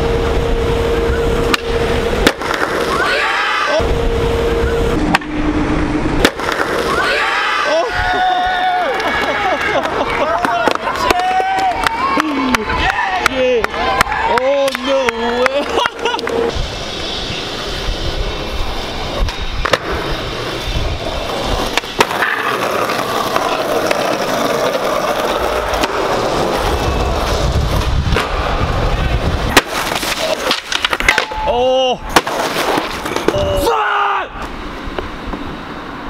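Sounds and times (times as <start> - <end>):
skateboard wheels rolling: 0.0 - 5.2, 6.0 - 36.0
skateboard clacks: 1.5 - 3.1, 6.2 - 7.1, 8.1 - 16.4, 19.2 - 33.5
person calling out: 31.4 - 32.0.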